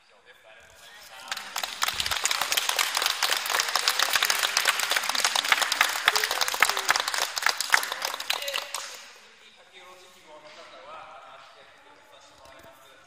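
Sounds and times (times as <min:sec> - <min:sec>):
audience applauding: 0:00.8 - 0:09.2.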